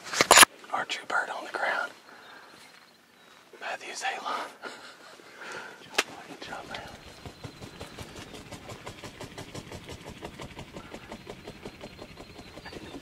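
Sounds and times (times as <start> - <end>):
turkey wings beating on ground: 6.0 - 13.0.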